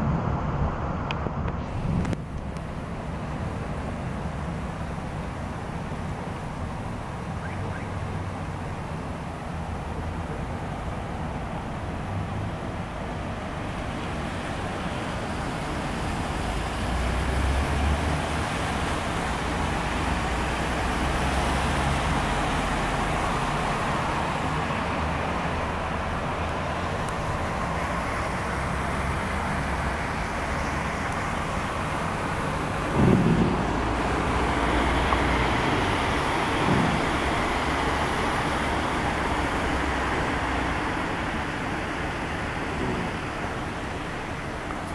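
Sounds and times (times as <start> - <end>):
cars passing on wet street: 0.0 - 44.9
heavy rain hissing: 8.4 - 44.9
low rumbling: 31.4 - 39.6
loud thump: 32.9 - 34.2, 36.6 - 37.2.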